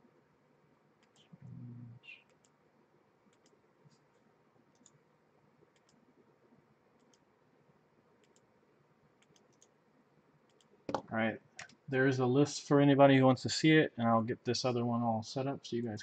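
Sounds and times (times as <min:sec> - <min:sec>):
computer mouse clicks: 0:01.0 - 0:01.3, 0:02.2 - 0:02.6, 0:03.3 - 0:05.0, 0:05.7 - 0:06.1, 0:07.0 - 0:07.3, 0:08.2 - 0:08.5, 0:09.2 - 0:09.8, 0:10.4 - 0:11.8.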